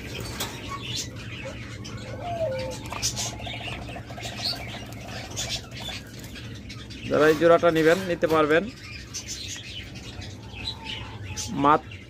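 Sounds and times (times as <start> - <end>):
doves cooing: 0.0 - 6.6.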